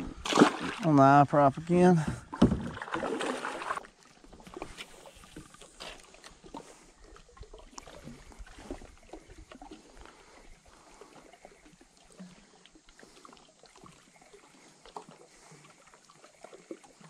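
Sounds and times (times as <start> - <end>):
water lapping against kayak hull: 0.0 - 17.0.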